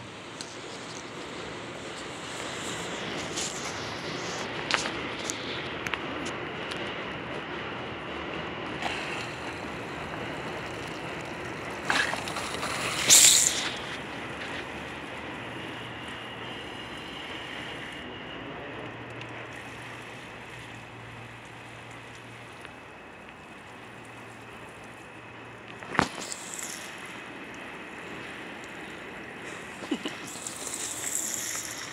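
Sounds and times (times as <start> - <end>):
low hum: 0.0 - 31.9
water spraying onto gravel: 8.8 - 17.9, 19.5 - 31.9.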